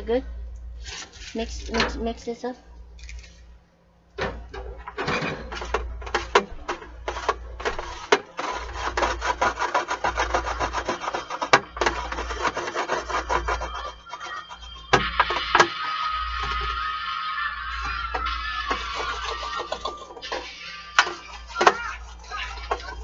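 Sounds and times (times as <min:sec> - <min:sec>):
wooden spoon scraping metal tray: 0:00.8 - 0:01.8, 0:04.9 - 0:15.7, 0:18.1 - 0:23.0.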